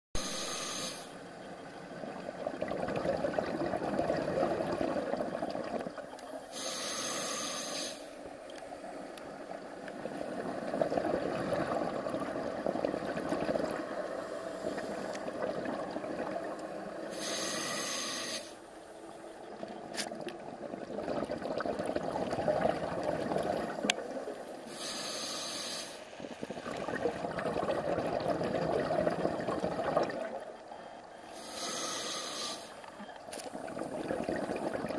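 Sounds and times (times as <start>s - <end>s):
diver inhaling through regulator: 0.2s - 1.2s, 6.5s - 8.2s, 17.0s - 18.6s, 24.6s - 26.1s, 31.3s - 32.8s
bubbling exhaust underwater: 0.2s - 8.1s, 9.3s - 34.9s.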